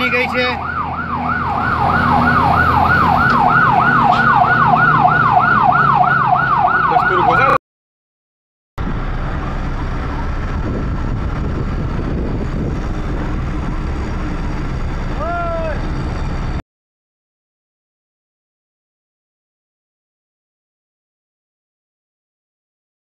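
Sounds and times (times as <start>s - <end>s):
fire engine siren yelping: 0.0s - 7.6s, 8.8s - 16.6s
steady rushing noise: 8.8s - 16.6s.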